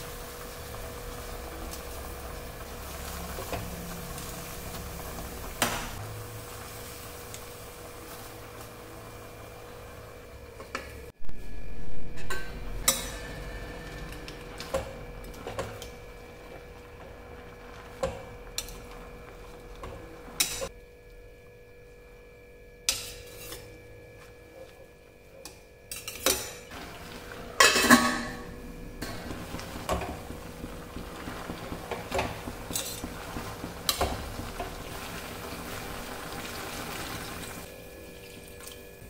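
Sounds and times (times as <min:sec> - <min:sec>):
metal spoon scraping a pot: 0:22.9 - 0:23.7
metal lid clanking on a pot: 0:27.6 - 0:28.4.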